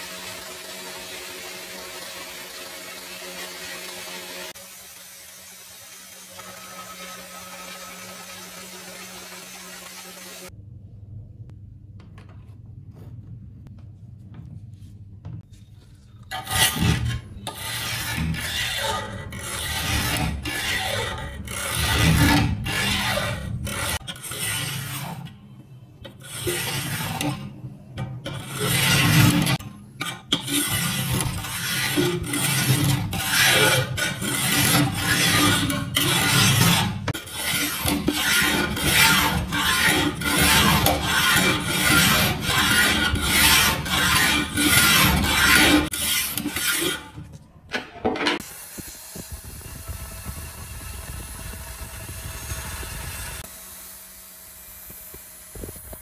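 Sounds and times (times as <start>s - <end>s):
hand file rasping on steel: 16.3s - 25.1s, 28.4s - 47.2s.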